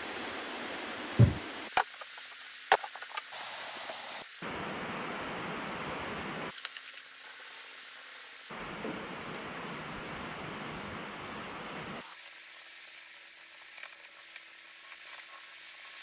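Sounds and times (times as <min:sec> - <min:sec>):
workshop room hiss: 0:01.2 - 0:04.5, 0:06.5 - 0:08.8, 0:11.4 - 0:16.0.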